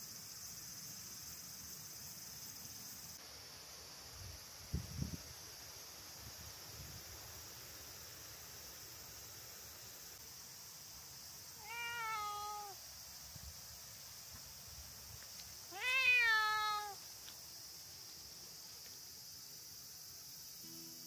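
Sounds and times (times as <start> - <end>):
cat meowing: 11.6 - 12.8, 15.7 - 17.0.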